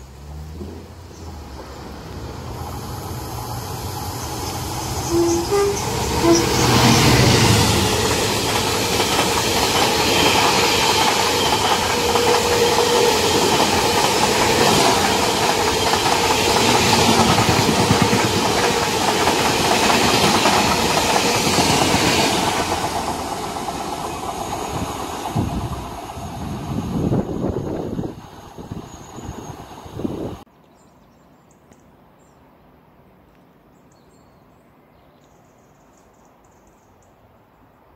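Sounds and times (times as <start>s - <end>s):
diesel locomotive engine: 0.0s - 30.4s
wagon wheels rumbling on rails: 7.8s - 28.0s.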